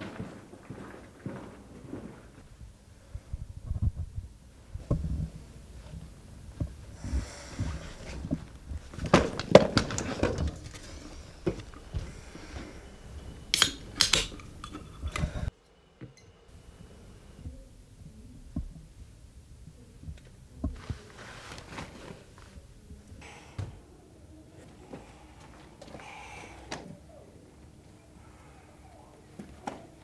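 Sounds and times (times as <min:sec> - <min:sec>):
drink can rustling and clattering: 0:07.7 - 0:15.5
gas hissing from can: 0:13.1 - 0:15.5
can ring-pull cracking open: 0:13.5 - 0:15.3.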